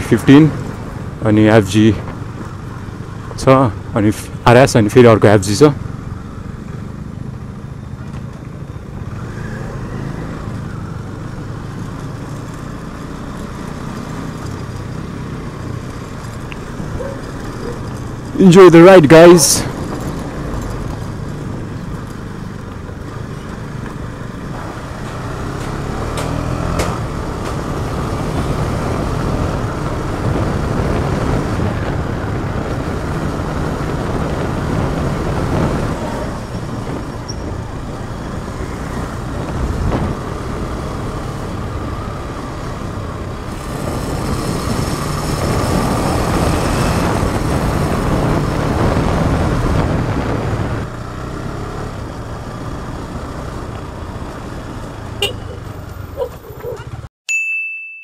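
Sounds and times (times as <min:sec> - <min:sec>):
motorcycle engine revving: 0:08.9 - 0:56.1
wind noise on microphone: 0:28.3 - 0:40.4, 0:42.9 - 0:50.9.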